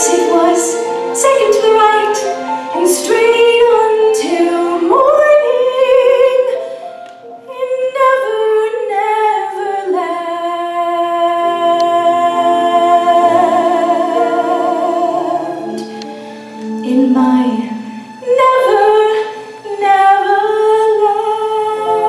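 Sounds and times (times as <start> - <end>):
woman singing with vibrato: 0.0 - 6.6, 7.4 - 16.0, 16.7 - 22.0.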